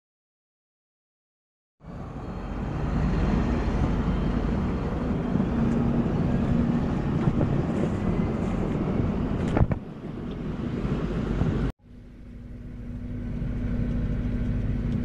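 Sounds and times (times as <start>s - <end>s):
heavy diesel machinery droning: 1.8s - 15.0s.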